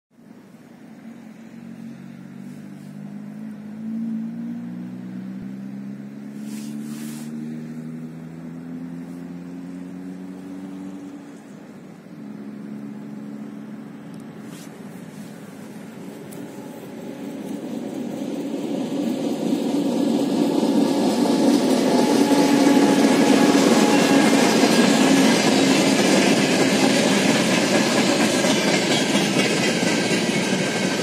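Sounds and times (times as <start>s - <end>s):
short hiss: 6.3s - 7.4s
locomotive diesel engine running: 6.3s - 31.0s.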